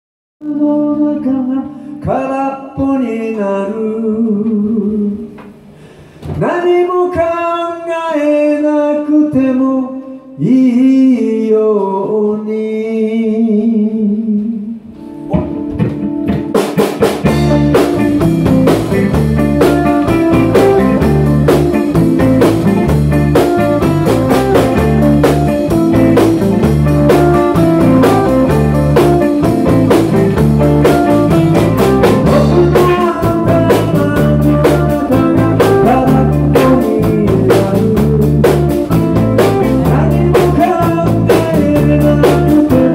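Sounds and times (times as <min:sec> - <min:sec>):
man singing: 0:00.4 - 0:05.4, 0:06.3 - 0:15.5, 0:32.2 - 0:38.5, 0:39.4 - 0:42.9
rock band playing: 0:15.0 - 0:42.9.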